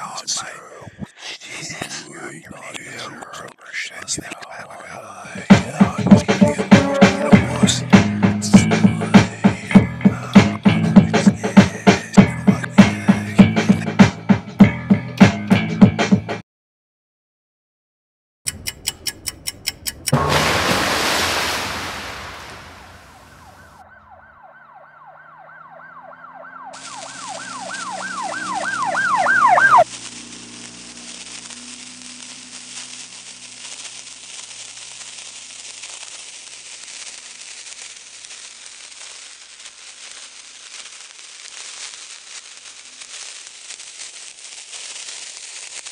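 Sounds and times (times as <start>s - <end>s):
low droning notes: 20.2s - 22.1s
loud burst of electronic noise: 20.2s - 23.6s
siren-like warbling tone: 20.2s - 29.9s
crackling static hiss: 20.7s - 23.7s, 26.8s - 45.9s.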